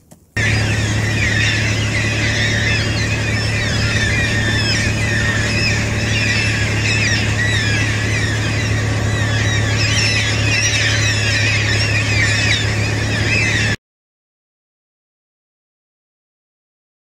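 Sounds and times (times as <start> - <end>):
cockatoos screeching: 0.4 - 13.8
steady low hum: 0.4 - 13.8.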